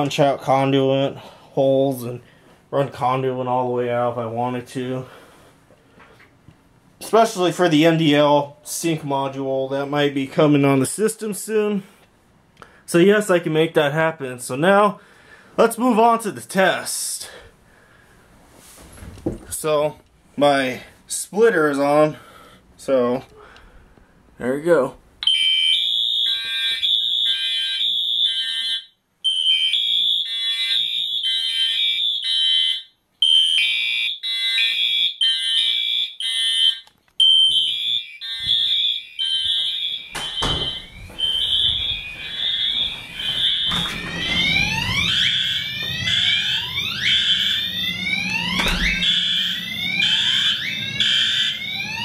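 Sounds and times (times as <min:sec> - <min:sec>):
pulsing fire alarm horns: 0:25.2 - 0:52.0.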